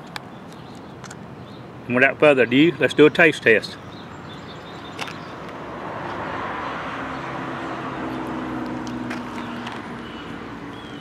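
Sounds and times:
distant engine drone passing by: 3.9s - 11.0s.

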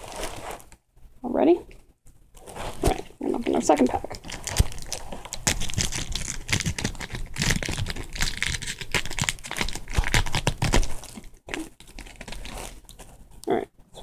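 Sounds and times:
foil wrapper tearing and crinkling: 3.4s - 13.2s.

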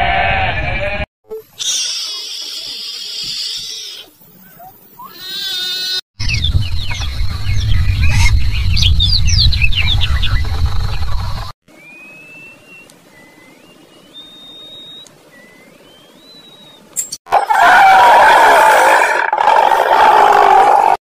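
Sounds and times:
bleat-like animal call: 0.0s - 4.1s, 5.0s - 6.0s.

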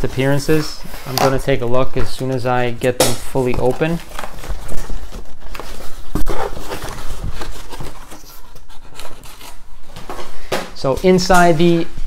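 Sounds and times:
wrapping rustling and crinkling: 0.0s - 10.5s.

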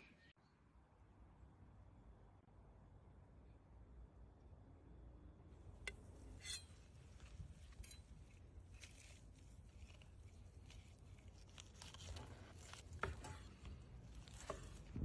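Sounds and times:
knife cutting meat crust: 7.8s - 15.0s.

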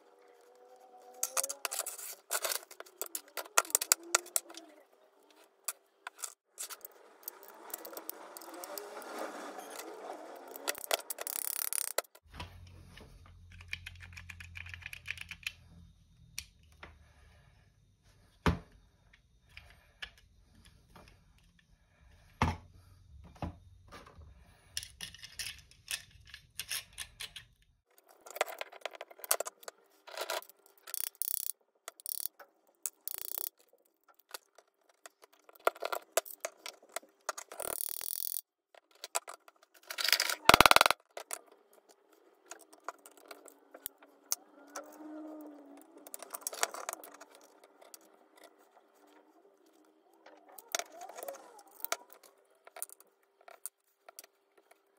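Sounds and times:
metal parts and tools clicking: 0.1s - 8.9s, 9.7s - 12.3s, 24.7s - 54.9s.

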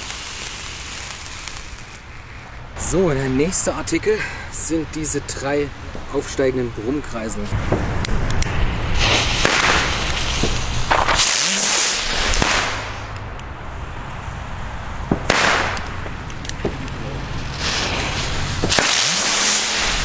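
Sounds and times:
sharp pops: 0.0s - 2.6s, 7.7s - 13.5s, 15.1s - 17.0s, 17.6s - 20.0s
fireworks loud hissing: 0.0s - 4.8s, 7.6s - 13.2s, 15.2s - 20.0s.

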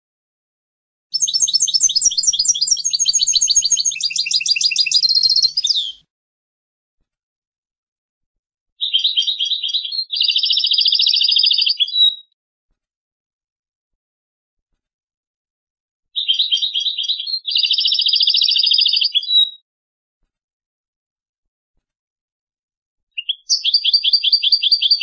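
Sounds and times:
goldfinch twittering trills: 1.1s - 6.0s.

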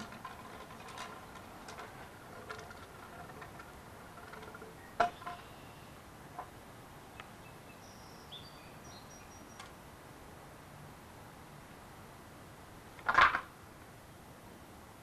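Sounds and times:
wooden board knocking: 4.4s - 5.4s.

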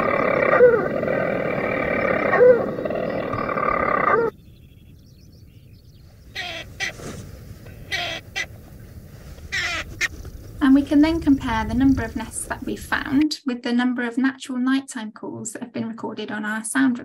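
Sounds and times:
bird churring song from speaker: 0.0s - 5.4s
faint bird calls: 0.0s - 10.6s.

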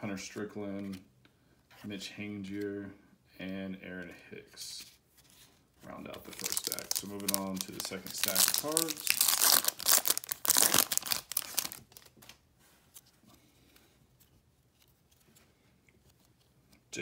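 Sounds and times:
faint handling of cards: 0.0s - 17.0s
wrapper tearing and crinkling: 6.3s - 12.4s.

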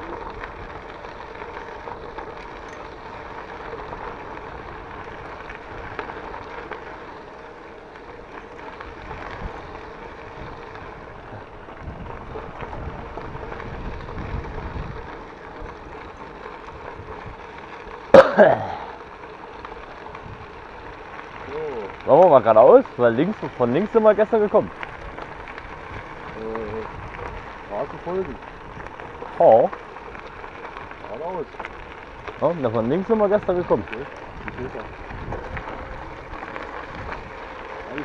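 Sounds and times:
bike tyres rattling on gravel: 0.0s - 38.0s
wind on microphone: 11.8s - 15.2s.

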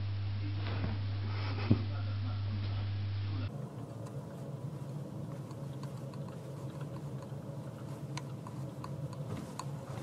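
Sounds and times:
light clicks and taps: 5.3s - 10.0s.

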